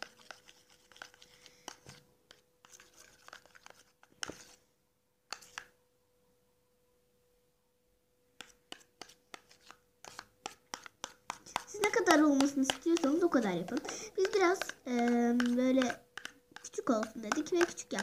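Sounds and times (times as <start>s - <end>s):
spoon scraping plastic tub: 0.0s - 4.6s, 5.3s - 5.7s, 8.4s - 18.0s.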